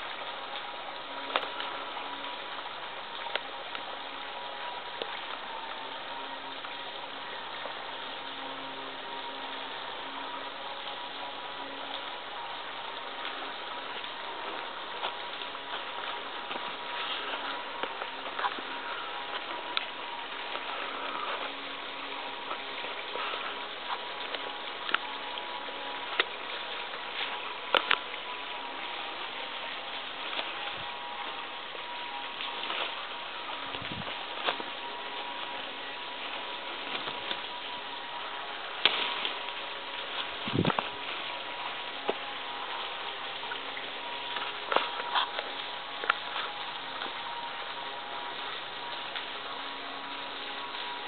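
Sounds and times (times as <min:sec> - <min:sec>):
small waterfall splashing: 0:00.0 - 0:51.0
footsteps snapping twigs: 0:26.1 - 0:28.1, 0:38.8 - 0:39.6.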